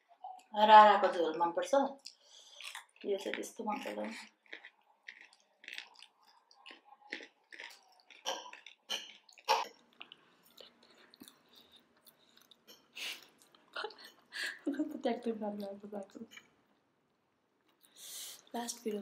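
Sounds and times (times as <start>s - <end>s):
wet chewing smacks: 2.0s - 14.1s.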